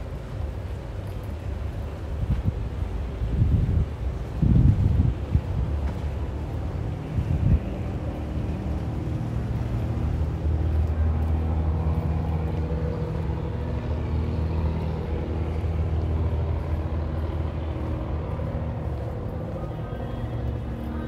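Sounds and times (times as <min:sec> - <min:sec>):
boat engine running: 0:04.8 - 0:21.0.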